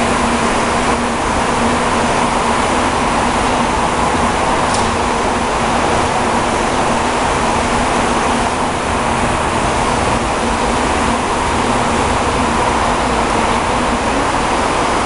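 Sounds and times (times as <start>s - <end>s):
milling machine whirring and humming: 0.0s - 15.0s.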